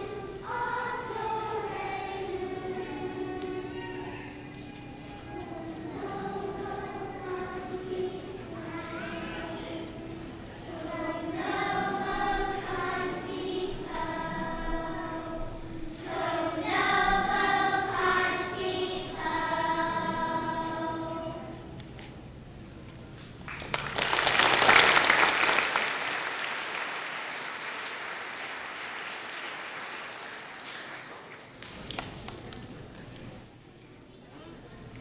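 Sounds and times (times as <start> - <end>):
children's choir singing: 0.0 - 21.8
congregation applauding: 23.4 - 32.6.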